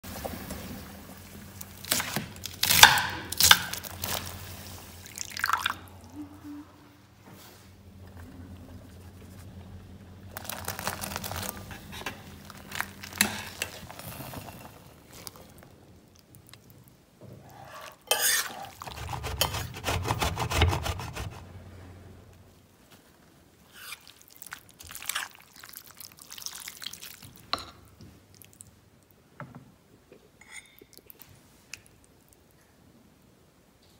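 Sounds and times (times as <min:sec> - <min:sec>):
steady low hum: 0:05.7 - 0:14.0
utensil scraping a pot: 0:17.5 - 0:21.5
wet squelching of food: 0:23.8 - 0:27.4.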